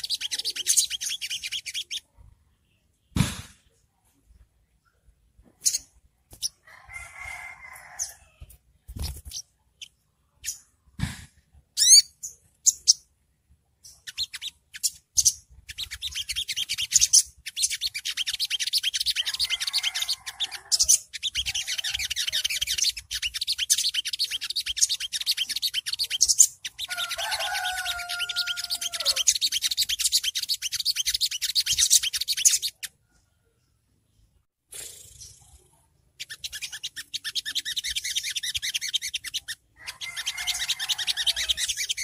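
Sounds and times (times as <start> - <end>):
bird twittering chatter: 0.0 - 2.2, 5.6 - 6.6, 11.8 - 13.1, 13.8 - 33.0, 34.8 - 42.0.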